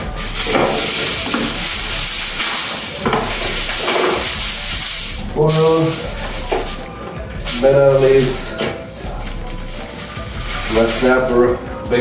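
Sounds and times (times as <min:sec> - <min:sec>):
aluminium foil crinkling: 0:00.0 - 0:11.5.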